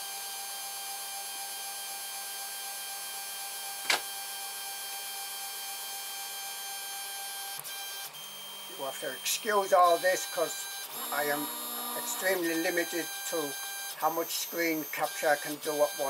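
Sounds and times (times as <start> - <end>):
sharp click: 3.8 - 4.1
stepper motors whining: 7.6 - 16.0.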